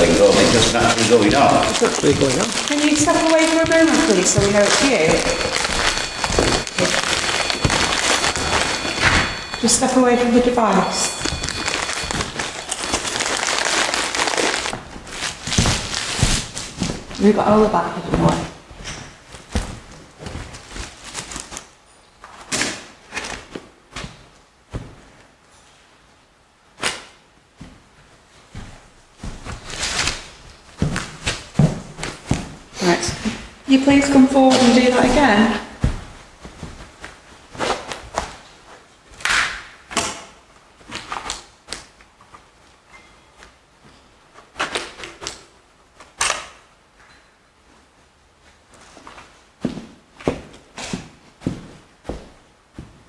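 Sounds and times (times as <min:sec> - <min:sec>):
scuffing noises: 0:00.0 - 0:17.4.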